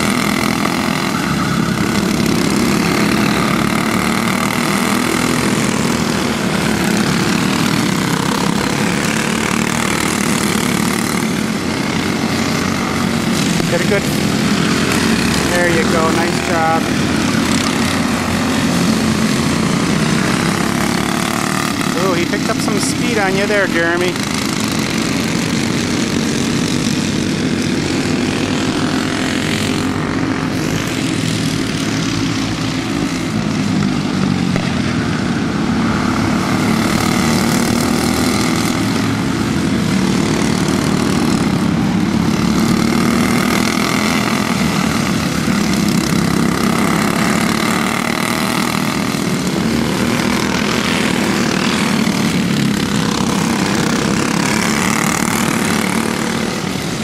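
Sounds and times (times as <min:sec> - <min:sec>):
racing kart engines buzzing: 0:00.0 - 0:57.0.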